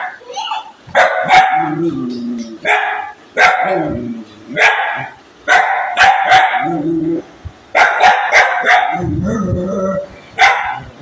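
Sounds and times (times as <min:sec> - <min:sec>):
dog barking angrily: 0:00.9 - 0:02.0, 0:02.6 - 0:06.9, 0:07.7 - 0:09.2, 0:10.3 - 0:11.0.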